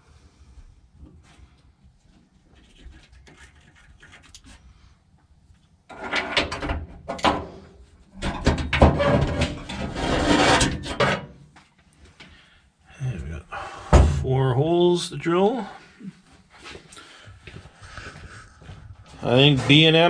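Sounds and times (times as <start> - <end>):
metal rubbing and scraping: 8.2 - 11.4, 17.7 - 20.0.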